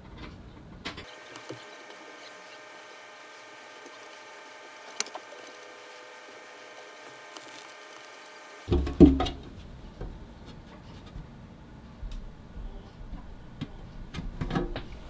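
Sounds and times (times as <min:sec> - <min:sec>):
faint steady hum: 0:00.0 - 0:15.0
plastic cover knocking and rattling: 0:08.7 - 0:09.5.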